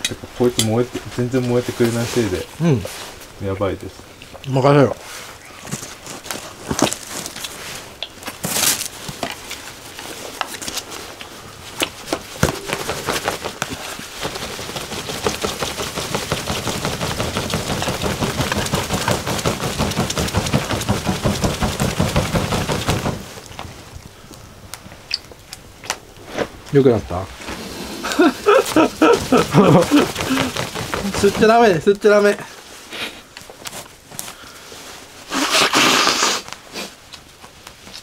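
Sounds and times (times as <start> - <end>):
fire crackling: 0.0 - 38.0
rhythmic fanning flaps: 12.2 - 23.8, 28.2 - 32.4
sharp knocks: 12.4 - 14.4.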